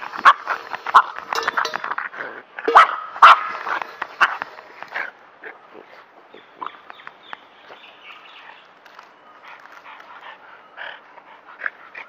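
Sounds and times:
dog barking: 2.7s - 3.6s.

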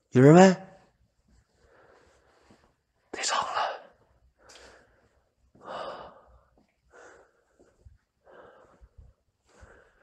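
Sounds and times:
person breathing noisily: 4.4s - 10.0s.

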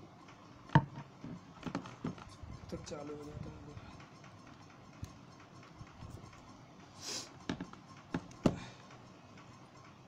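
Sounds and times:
phone clicks and knocks: 7.4s - 8.6s.

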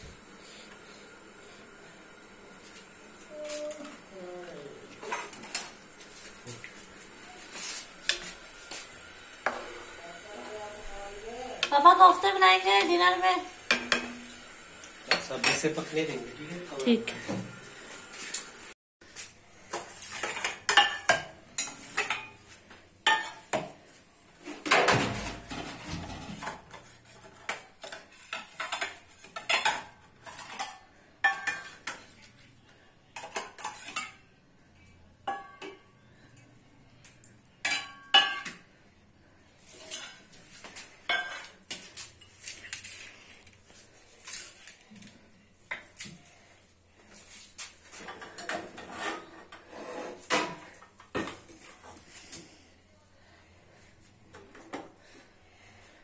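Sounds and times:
metal dishes clinking: 15.1s - 15.8s, 20.1s - 22.4s, 35.2s - 35.9s, 37.6s - 38.6s, 41.1s - 41.6s.

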